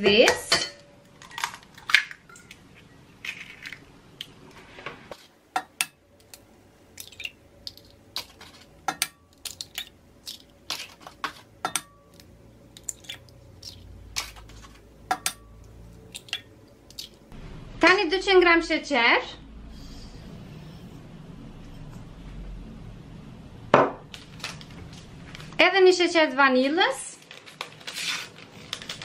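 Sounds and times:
eggshells cracking on bowl: 0:06.2 - 0:11.4, 0:12.1 - 0:14.8.

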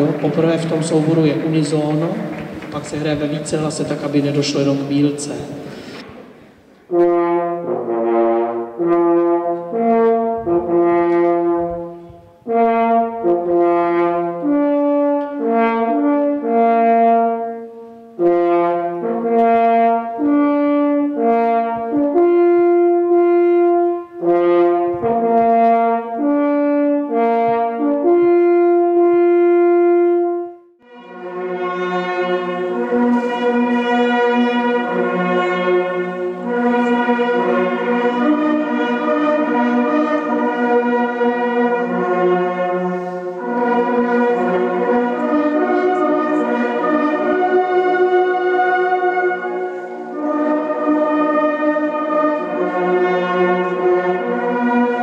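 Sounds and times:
solo hunting horn call: 0:18.2 - 0:55.0.

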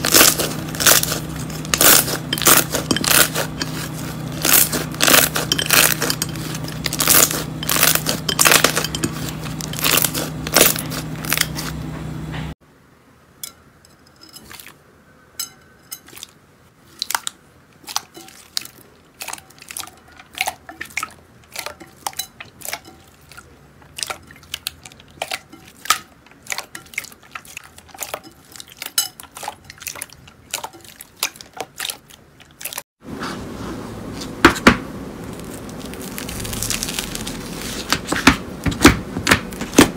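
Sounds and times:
slime crackling and popping: 0:35.2 - 0:38.9.

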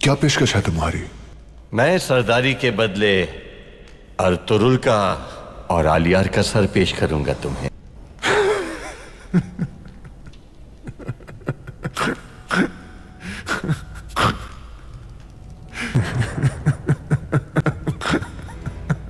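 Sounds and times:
man laughing: 0:08.2 - 0:12.8, 0:15.9 - 0:19.0.

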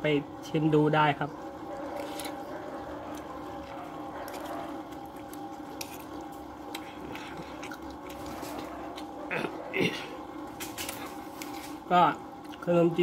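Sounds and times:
steady low hum: 0:00.0 - 0:13.0
person chewing and slurping noodles: 0:01.8 - 0:11.8.

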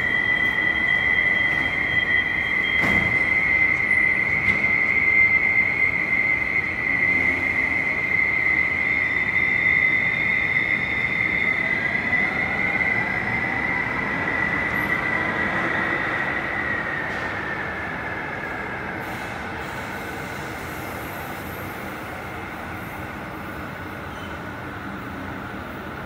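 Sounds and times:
train accelerating with rising whine: 0:00.0 - 0:26.0.

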